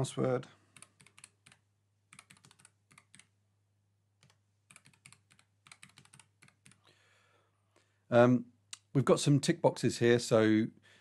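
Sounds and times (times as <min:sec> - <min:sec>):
faint keyboard typing: 0:00.7 - 0:03.4, 0:04.2 - 0:06.9.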